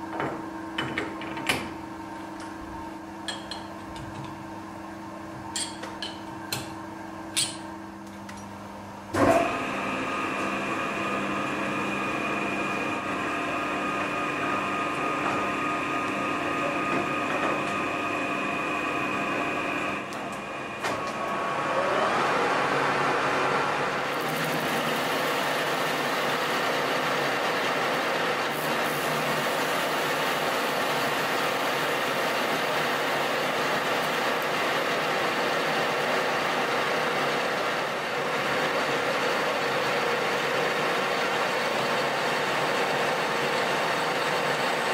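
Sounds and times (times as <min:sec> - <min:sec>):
lathe running with high whine: 0:09.2 - 0:44.9.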